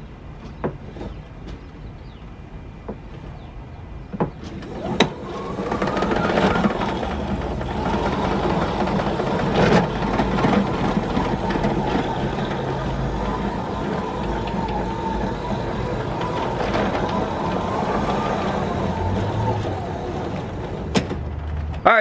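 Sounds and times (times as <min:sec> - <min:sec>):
hose reel whirring: 0:04.5 - 0:21.3.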